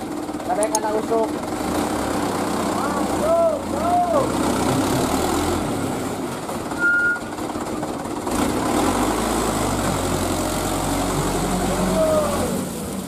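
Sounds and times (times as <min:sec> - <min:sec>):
dump truck engine running: 0:00.0 - 0:13.0
short high squeal: 0:06.7 - 0:07.3.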